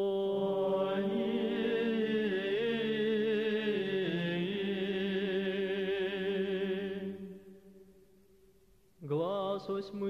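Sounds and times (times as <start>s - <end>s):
men's choir chanting: 0.1s - 7.1s.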